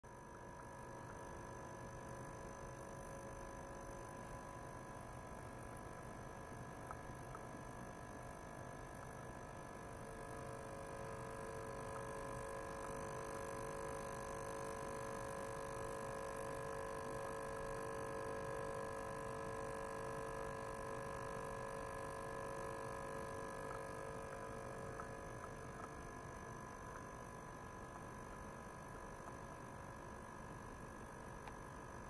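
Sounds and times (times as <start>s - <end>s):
ultrasonic cleaner humming: 8.8s - 32.0s.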